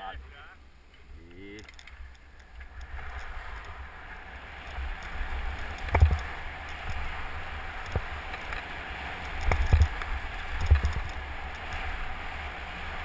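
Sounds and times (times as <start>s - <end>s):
wind buffeting microphone: 1.9s - 13.0s
skis sliding over snow: 2.4s - 13.0s.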